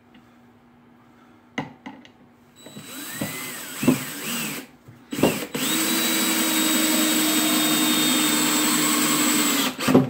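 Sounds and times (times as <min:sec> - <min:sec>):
cordless drill boring into wood: 0:02.6 - 0:10.0.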